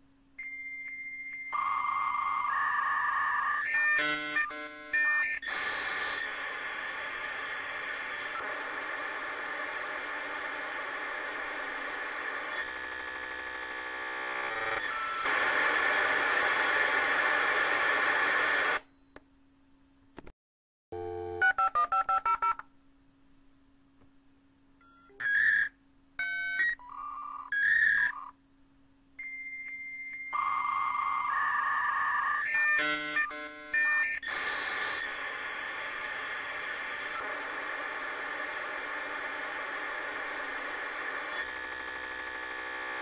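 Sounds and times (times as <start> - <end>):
modem data hiss: 2.5 - 18.8, 30.4 - 43.0.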